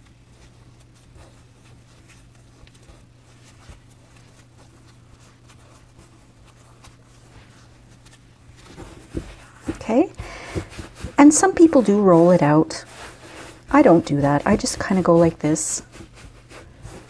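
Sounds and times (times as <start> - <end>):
hands patting and rubbing dough: 0.0 - 17.0
low steady hum: 0.0 - 17.0.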